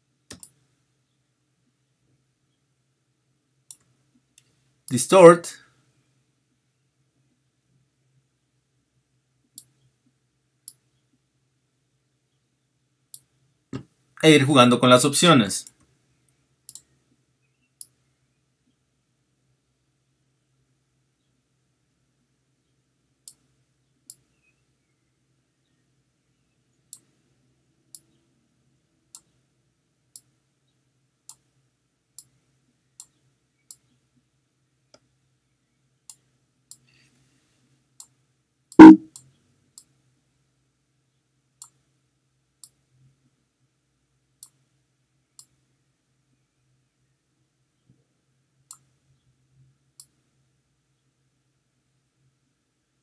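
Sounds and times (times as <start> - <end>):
computer mouse clicking: 0.3 - 0.6, 3.7 - 3.9, 16.7 - 16.9.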